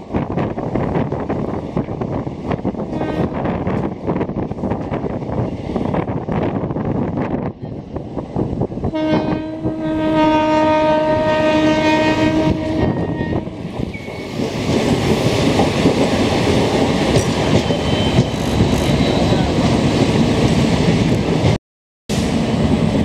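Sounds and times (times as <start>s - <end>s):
train running on rails: 0.0s - 23.0s
locomotive horn blast: 8.9s - 13.7s.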